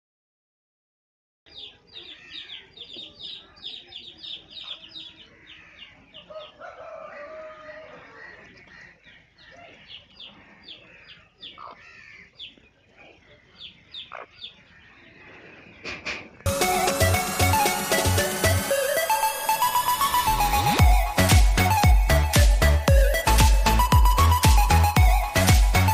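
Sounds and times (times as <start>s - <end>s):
chickens clucking: 1.6s - 19.1s
rooster call: 6.3s - 8.3s.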